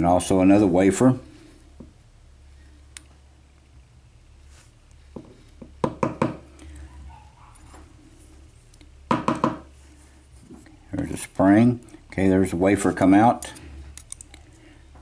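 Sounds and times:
tweezers clicking and tapping: 13.4s - 14.4s.

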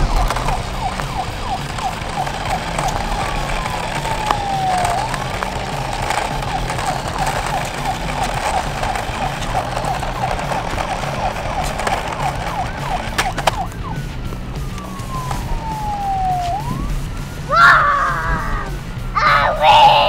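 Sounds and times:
toy police siren: 0.0s - 18.7s.

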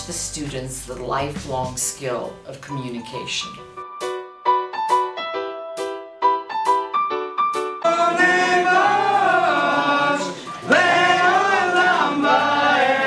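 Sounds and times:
keyboard notes: 2.7s - 13.0s.

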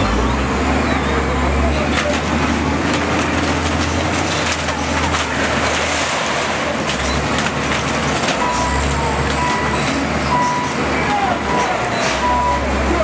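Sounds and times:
wheel loader diesel engine: 0.0s - 13.0s
crashing and wood splintering: 1.9s - 10.0s
reversing beep: 8.4s - 10.8s, 11.4s - 12.7s.

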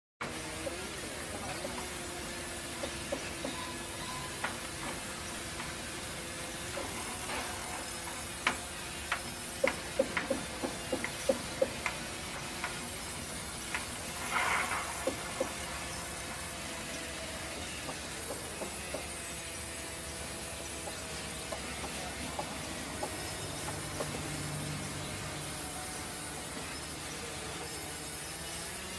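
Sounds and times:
band saw hissing through log: 0.2s - 28.9s
sharp knocks and clicks: 6.7s - 12.8s, 17.5s - 19.2s
short burst of noise: 13.8s - 16.5s.

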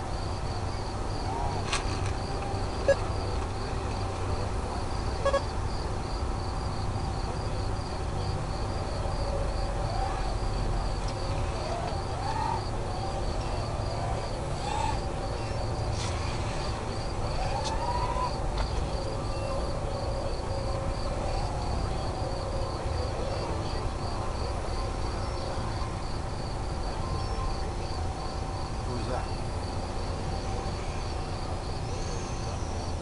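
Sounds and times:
crickets chirping: 0.0s - 33.0s
faint sliding whines: 8.6s - 33.0s.

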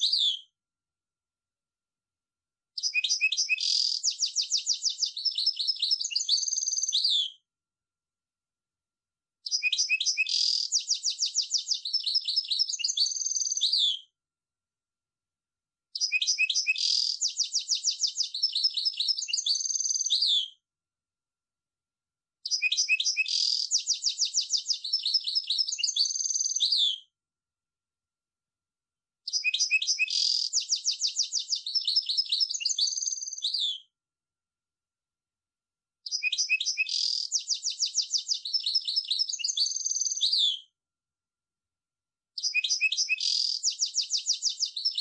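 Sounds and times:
goldfinch twittering song: 0.0s - 0.4s, 2.8s - 7.3s, 9.4s - 14.0s, 16.0s - 20.5s, 22.5s - 27.0s, 29.3s - 33.9s, 36.1s - 40.6s, 42.4s - 45.0s.

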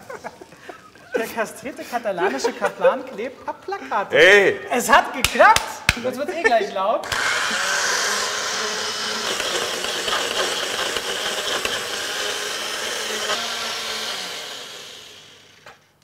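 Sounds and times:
electric blender running: 7.0s - 15.8s.

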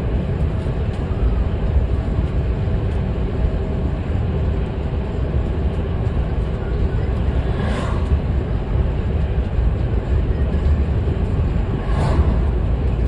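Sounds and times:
bus engine rumble: 0.0s - 13.0s
rushing noise: 5.9s - 13.0s.

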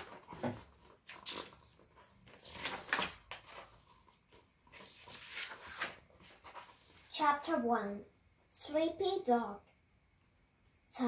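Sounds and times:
book pages turning: 0.0s - 7.1s.

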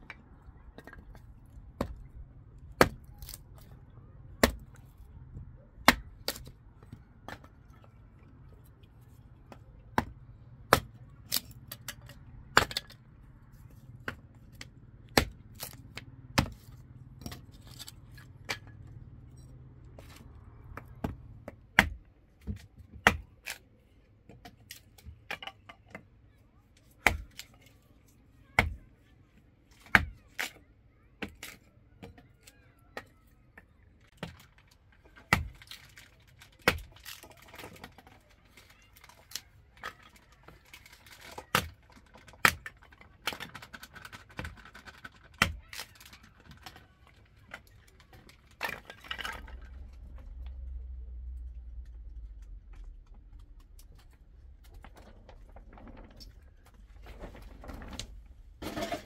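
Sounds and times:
hatchet chopping wood: 1.8s - 2.1s, 2.8s - 3.4s, 4.4s - 4.8s, 5.8s - 6.5s, 9.5s - 13.0s, 14.0s - 17.9s, 20.7s - 23.6s, 27.0s - 27.5s, 28.6s - 28.8s, 29.8s - 30.6s, 35.3s - 35.7s, 36.6s - 37.6s, 45.3s - 45.6s.

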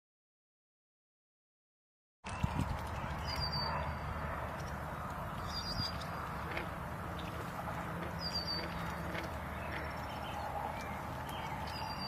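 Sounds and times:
geese dabbling and splashing: 2.2s - 12.0s
high bird chirps: 8.2s - 8.8s.

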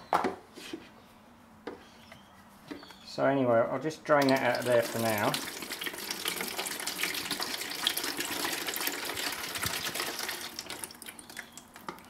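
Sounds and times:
liquid trickling into plastic bottle: 4.2s - 12.0s.

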